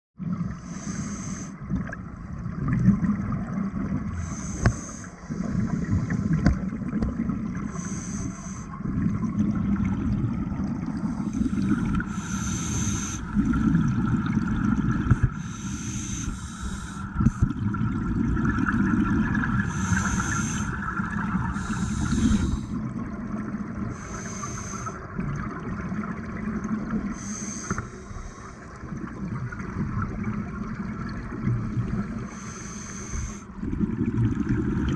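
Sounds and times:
low rumble of water and bubbles: 0.2s - 34.9s
diver breathing through regulator: 0.6s - 1.6s, 4.1s - 6.5s, 7.6s - 8.8s, 11.0s - 13.6s, 15.1s - 17.6s, 19.6s - 22.8s, 23.9s - 25.1s, 27.1s - 28.7s, 32.2s - 33.6s.

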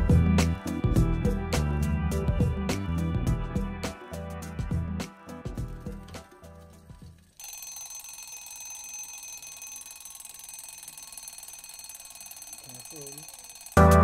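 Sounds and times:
high-pitched alarm ringing: 7.4s - 14.0s.

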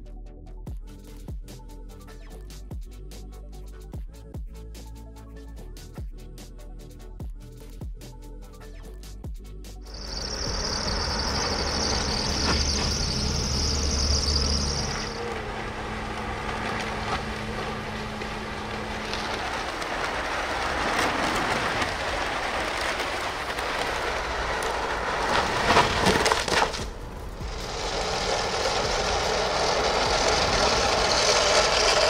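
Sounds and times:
high hiss: 9.9s - 25.0s, 27.2s - 32.0s
low hum: 9.9s - 32.0s
road and tyre noise: 9.9s - 32.0s
van engine running: 9.9s - 32.0s.

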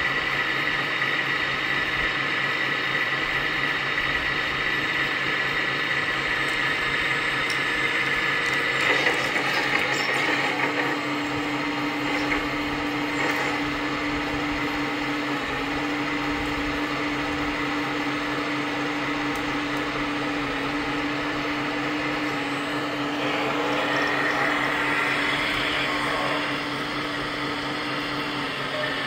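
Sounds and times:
hydraulic pump hum and whine: 0.0s - 29.0s.

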